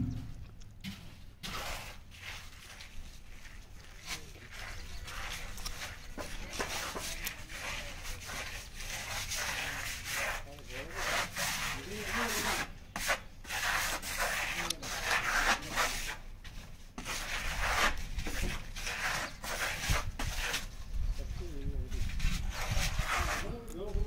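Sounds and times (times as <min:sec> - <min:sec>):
hand tool scraping rough surface: 0:00.0 - 0:24.0.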